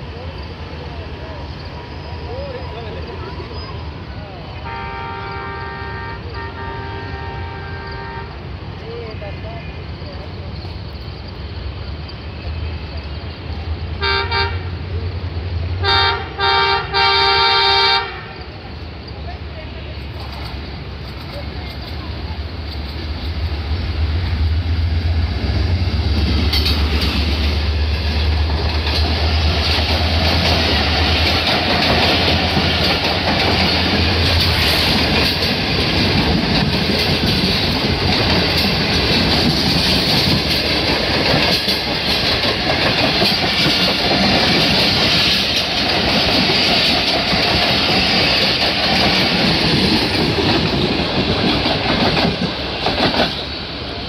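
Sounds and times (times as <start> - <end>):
train wheels clattering on rails: 19.0 - 54.0.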